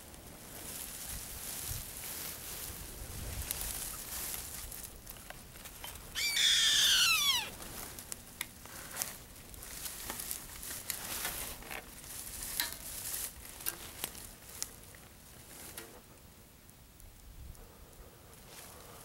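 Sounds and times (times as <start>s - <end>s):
bird call falling in pitch: 6.2s - 7.5s.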